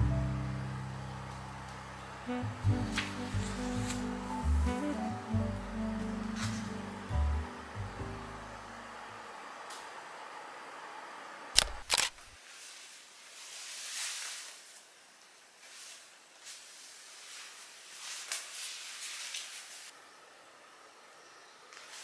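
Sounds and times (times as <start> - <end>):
soft rustling: 15.6 - 19.9.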